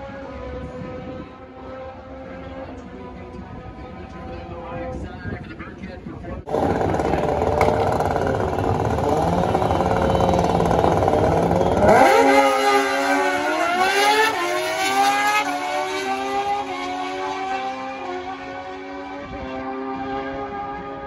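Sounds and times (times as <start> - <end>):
motorcycles revving and accelerating: 6.5 - 21.0.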